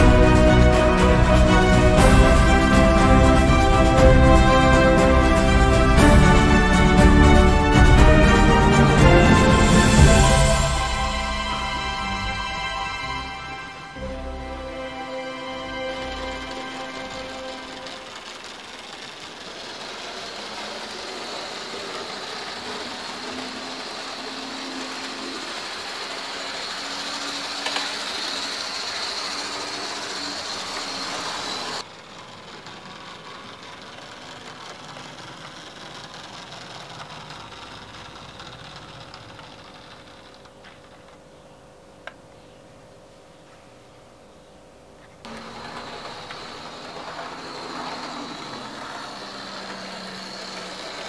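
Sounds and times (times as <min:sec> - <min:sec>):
model train motor whirring: 0:00.0 - 0:41.2, 0:45.2 - 0:51.0.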